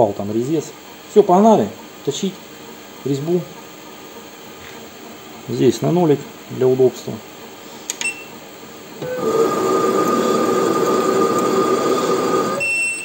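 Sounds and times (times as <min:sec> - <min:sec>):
lathe motor whine: 0:08.8 - 0:13.0.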